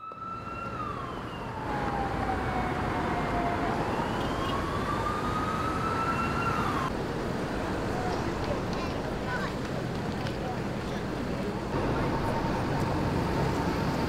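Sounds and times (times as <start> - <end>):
emergency vehicle siren wailing: 0.0 - 7.0
city street traffic: 0.0 - 14.0.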